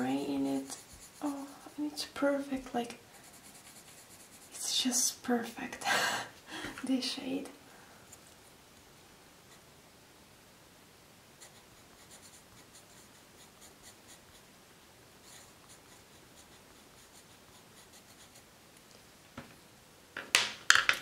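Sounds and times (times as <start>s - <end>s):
pencil scratching on paper: 0.0s - 4.8s, 11.4s - 14.5s, 15.2s - 18.5s.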